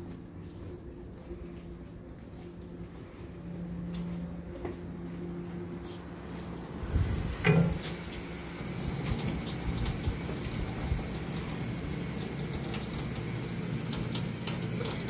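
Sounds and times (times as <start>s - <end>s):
tap water running into sink: 7.1s - 15.0s.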